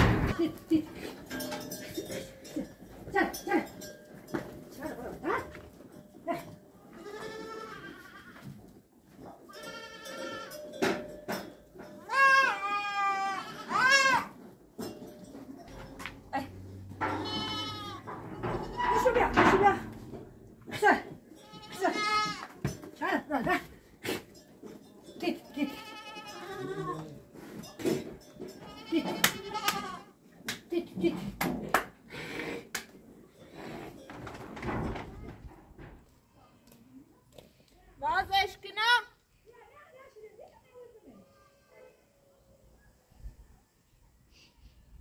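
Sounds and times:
goats bleating: 7.0 - 8.4, 12.1 - 14.3, 17.0 - 19.1, 21.4 - 22.6, 25.6 - 27.2, 28.6 - 30.1.

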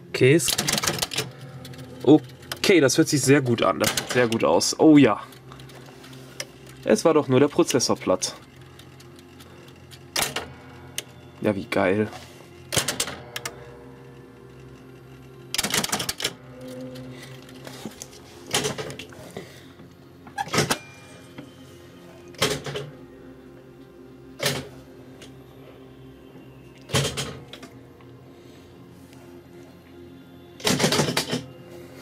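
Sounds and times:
steady machine hum: 0.0 - 32.0
slot machine clicking: 0.4 - 11.9, 12.7 - 19.2, 24.4 - 25.3, 26.9 - 27.8, 30.6 - 31.5.

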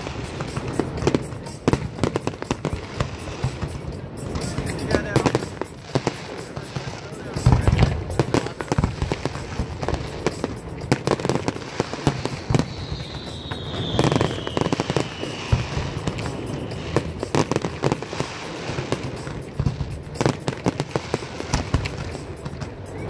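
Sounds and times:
fireworks bursting and crackling: 0.0 - 23.0
firework whistle sliding downward: 7.4 - 19.6, 20.2 - 23.0.

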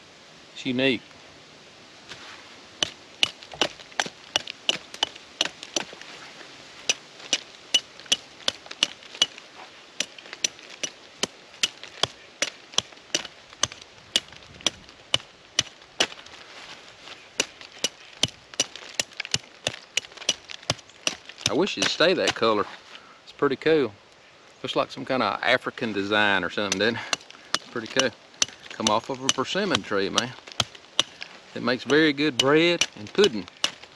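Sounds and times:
knife carving wood: 2.8 - 6.0, 6.9 - 9.4, 10.0 - 16.2, 17.4 - 22.4, 26.6 - 33.9.

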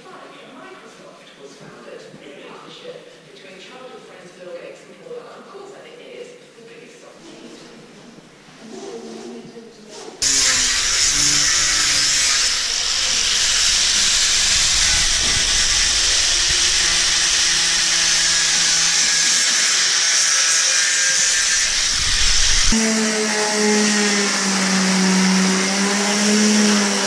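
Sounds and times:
electric sander grinding hull: 10.2 - 27.0.

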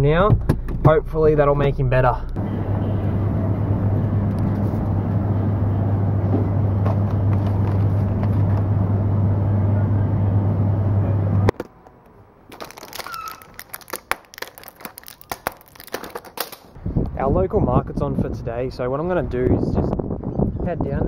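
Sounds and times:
car engine and road noise: 0.0 - 16.8
tablets pushed from foil blister pack: 12.5 - 16.8.

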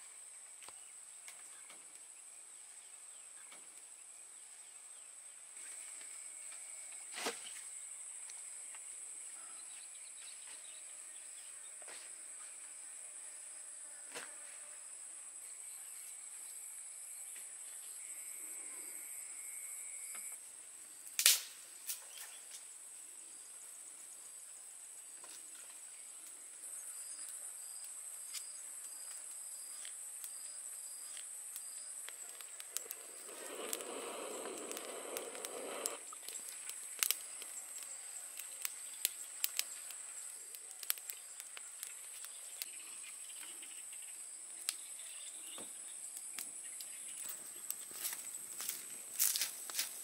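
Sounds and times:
insects chirring: 0.2 - 50.0
wood fire crackling: 21.0 - 22.1, 27.2 - 42.8, 46.2 - 50.0.

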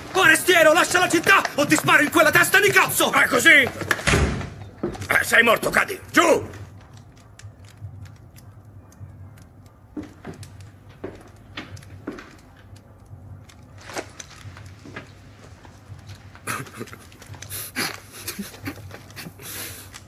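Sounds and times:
man panting and laughing: 16.4 - 20.0.

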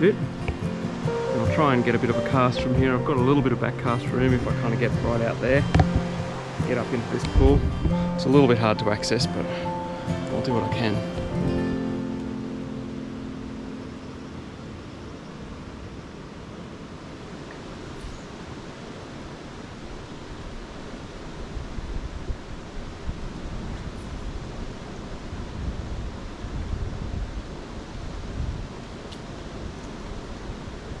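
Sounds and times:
wind buffeting microphone: 0.0 - 8.9, 20.2 - 31.0.

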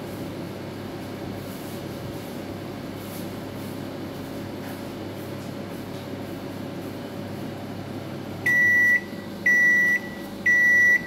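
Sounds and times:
microwave oven humming: 0.0 - 11.0
microwave beeps: 8.4 - 11.0.

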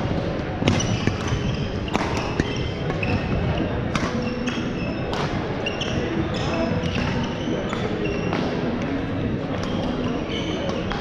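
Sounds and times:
rackets striking shuttlecocks: 0.1 - 5.4
shoes squeaking on court floor: 0.2 - 11.0.

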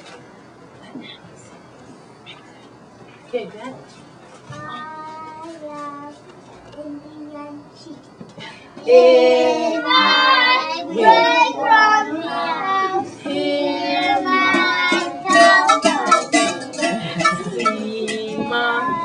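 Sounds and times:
children singing: 8.8 - 19.0.

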